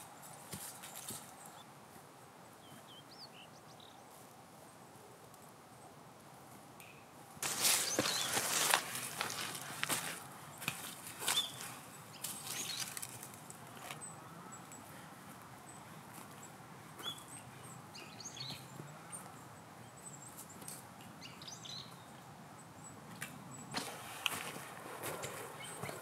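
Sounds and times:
small birds chirping: 2.5 - 4.2, 6.8 - 26.0
footsteps crunching through dry leaves: 7.4 - 13.4.

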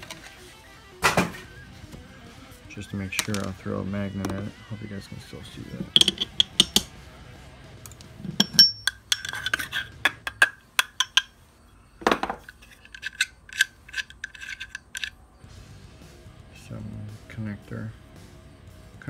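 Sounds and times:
metallic clicks and clinks: 5.9 - 7.0, 7.8 - 11.4, 12.4 - 15.2.

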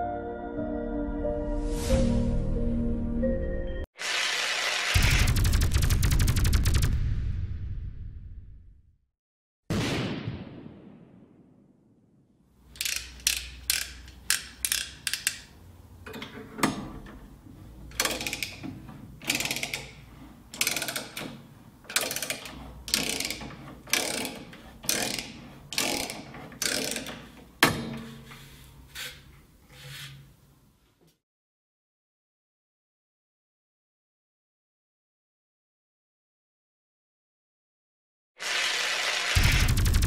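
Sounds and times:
ratchet clicks: 12.7 - 15.5, 17.9 - 27.4
tube cutter rasping on pipe: 22.0 - 27.4.

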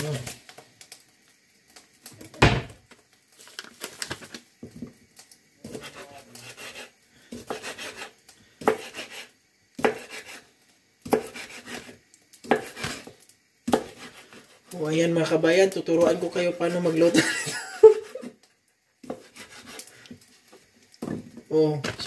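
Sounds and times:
knife knocking on cutting board: 2.4 - 2.8.

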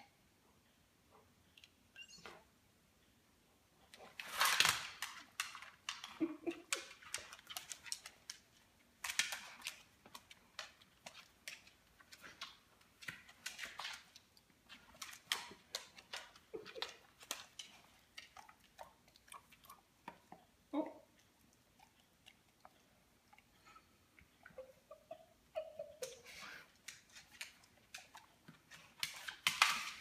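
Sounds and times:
dog claws clicking on wooden floor: 4.0 - 19.0, 26.8 - 30.0.

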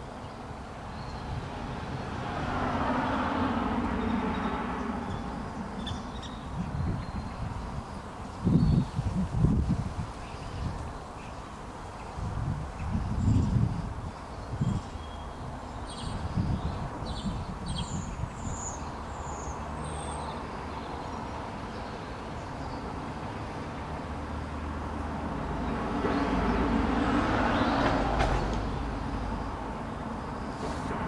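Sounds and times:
wind gusting on microphone: 0.0 - 19.8, 20.4 - 31.0
passing vehicle rumble: 0.0 - 31.0
small birds chirping: 4.0 - 9.2, 10.1 - 23.1.

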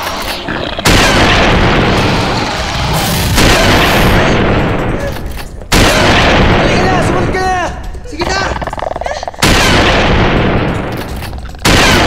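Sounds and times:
rumbling noise: 0.5 - 12.0
loud booming blasts: 0.8 - 5.0, 5.7 - 7.4, 9.4 - 12.0.

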